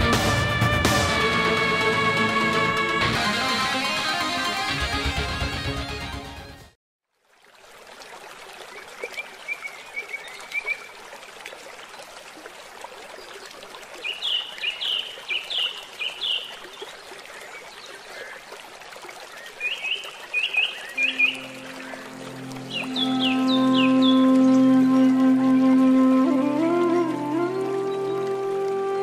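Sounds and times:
running water stream: 7.0 - 29.0
bird chirping: 19.6 - 22.0.

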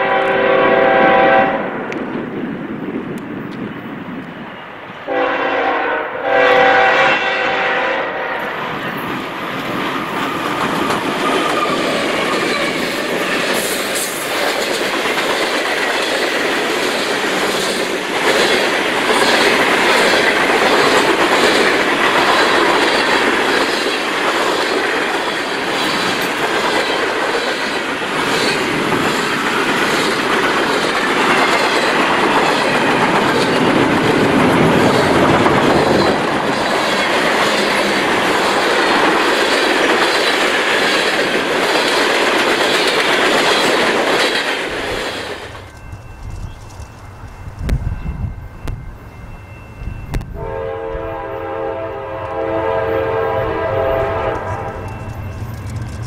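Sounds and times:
diesel locomotives passing: 0.0 - 56.0
train wheels clacking on rails: 8.5 - 50.4, 54.2 - 56.0.

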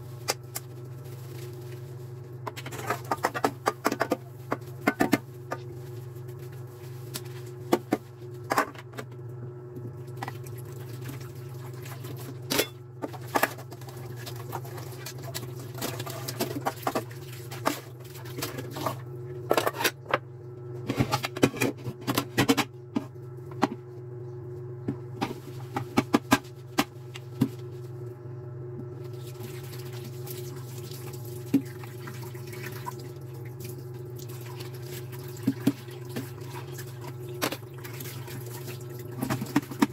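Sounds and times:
steady low hum: 0.0 - 39.9
tap water running: 9.9 - 19.1, 29.0 - 39.9.

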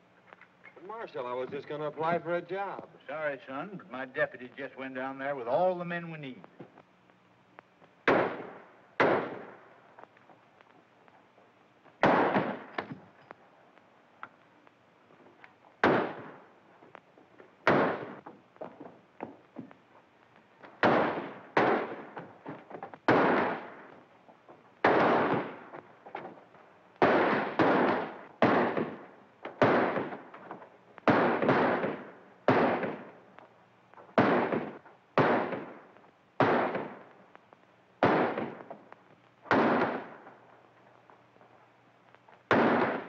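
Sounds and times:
pistol and rifle shots echoing: 8.0 - 9.8, 12.0 - 13.0, 15.8 - 16.5, 17.6 - 18.3, 20.8 - 24.0, 24.8 - 26.4, 27.0 - 33.3, 34.0 - 37.2, 38.0 - 38.8, 39.5 - 40.4, 42.5 - 43.0.

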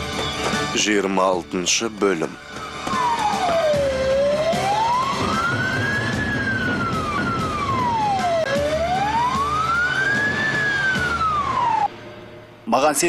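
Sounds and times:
ambulance siren wailing: 2.6 - 12.0.

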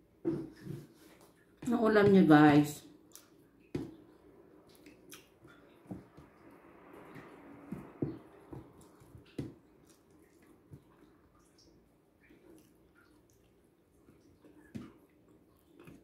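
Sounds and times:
wet chewing and mouth smacks: 3.0 - 6.6, 8.4 - 16.0.

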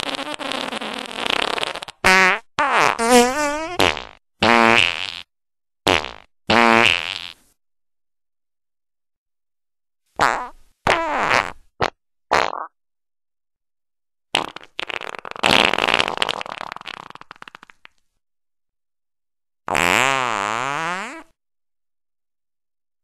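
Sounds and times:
farts: 0.0 - 5.3, 5.9 - 7.4, 10.2 - 12.8, 14.3 - 18.0, 19.7 - 21.4.

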